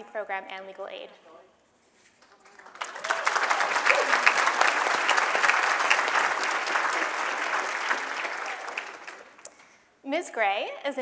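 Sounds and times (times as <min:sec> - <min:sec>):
audience applauding: 0:02.2 - 0:09.6.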